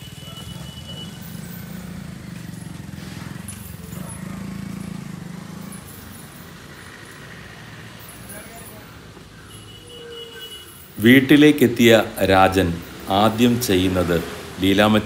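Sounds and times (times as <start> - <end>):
engine running: 0.0 - 8.3
people talking: 11.0 - 15.0.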